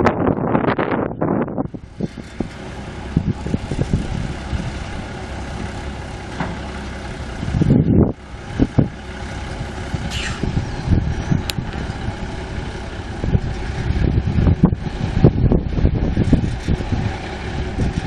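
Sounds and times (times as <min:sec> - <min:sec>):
diesel truck engine running: 0:00.0 - 0:18.0
brief rushes of noise: 0:10.1 - 0:10.6.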